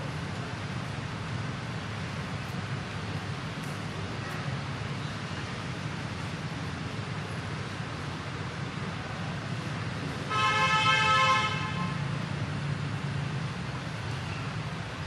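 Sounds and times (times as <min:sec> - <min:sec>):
vehicle horn toot: 0:10.3 - 0:12.0.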